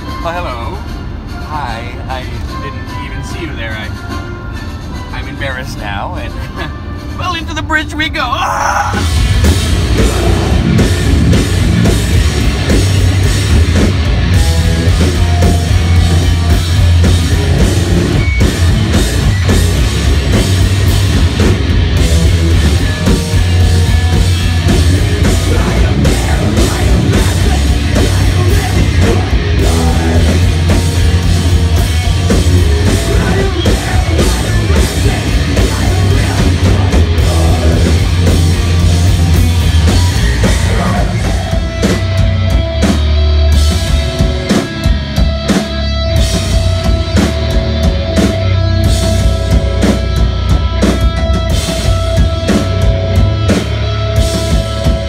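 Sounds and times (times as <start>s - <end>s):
live heavy rock band: 0.0s - 55.0s.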